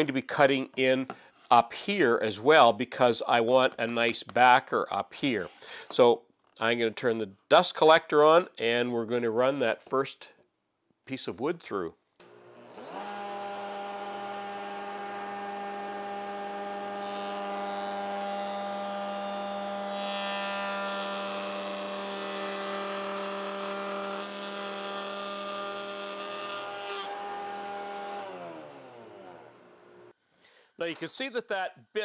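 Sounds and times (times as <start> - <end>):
router and dust collector hum: 12.2 - 30.1
router bit cutting wood: 12.2 - 30.1.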